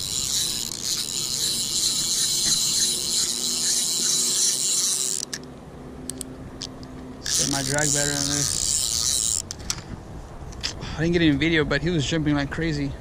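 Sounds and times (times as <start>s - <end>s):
fishing reel whirring: 0.0s - 5.4s, 7.2s - 9.6s
reel handle ticking: 0.0s - 5.4s, 7.2s - 9.5s.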